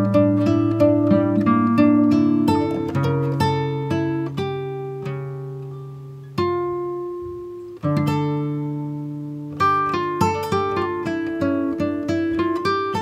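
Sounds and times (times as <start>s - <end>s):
plucked guitar music: 0.0s - 13.0s.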